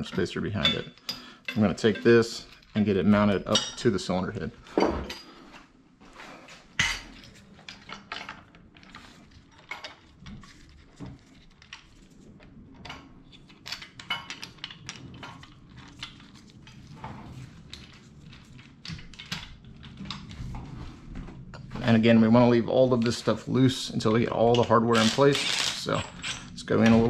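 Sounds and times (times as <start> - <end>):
metal clinks and knocks: 24.4 - 27.0.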